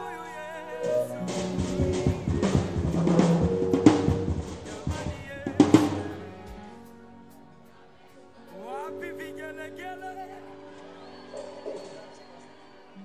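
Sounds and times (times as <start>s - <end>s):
held chords: 0.0s - 7.4s
snare and bass drum strokes: 1.2s - 6.2s.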